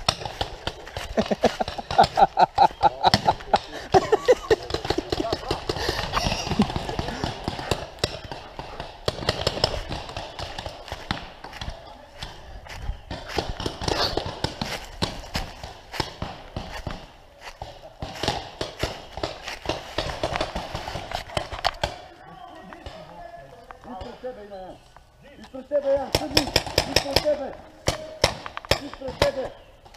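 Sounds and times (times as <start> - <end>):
footsteps running through dry leaves: 0.0 - 21.3.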